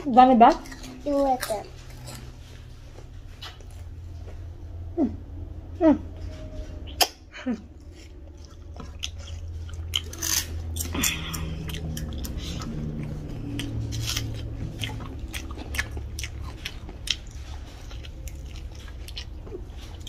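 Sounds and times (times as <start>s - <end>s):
low steady hum: 0.0s - 20.0s
wet chewing: 7.8s - 20.0s.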